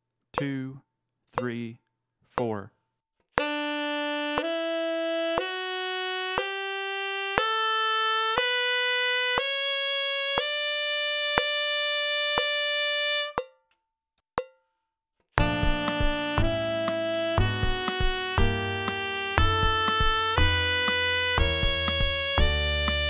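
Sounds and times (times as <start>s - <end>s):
metronome clicking: 0.4s - 0.8s, 1.4s - 1.8s, 2.4s - 2.6s, 4.4s - 4.6s, 5.4s - 5.6s, 6.3s - 6.6s, 11.4s - 11.6s
tenor saxophone playing a scale: 3.4s - 13.4s, 15.4s - 23.0s.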